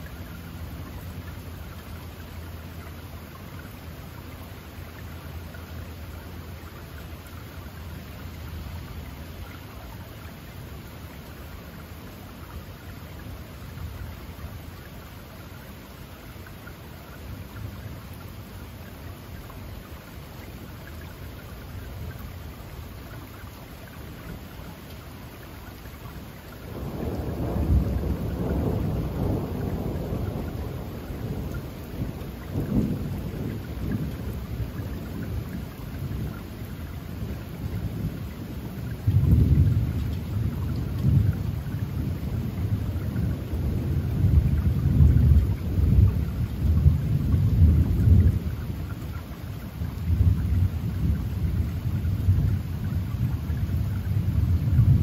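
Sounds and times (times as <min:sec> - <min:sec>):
steady rain: 0:00.0 - 0:55.0
thunder rumbling: 0:26.7 - 0:36.4, 0:37.2 - 0:49.0, 0:49.8 - 0:55.0.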